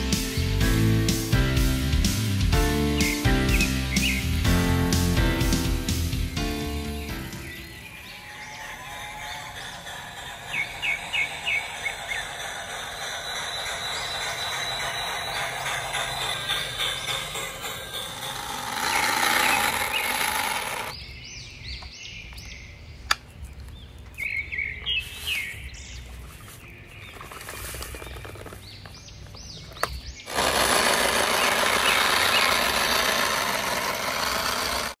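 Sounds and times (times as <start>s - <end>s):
high bird-like chirps: 3.0s - 4.4s, 6.3s - 20.2s
steady rushing noise: 9.5s - 20.9s.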